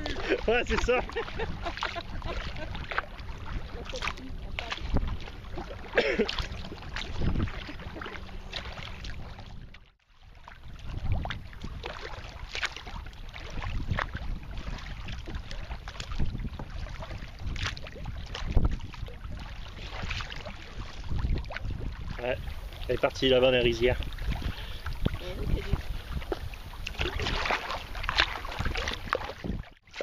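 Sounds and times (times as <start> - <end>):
paddle strokes splashing: 0.0 - 30.0
water lapping against hull: 0.0 - 30.0.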